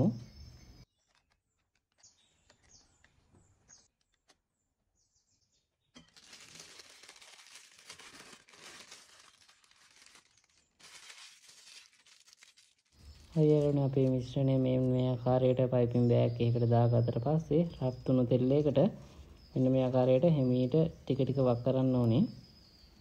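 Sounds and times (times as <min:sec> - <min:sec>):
plastic piping bag crinkling: 0:06.0 - 0:14.9.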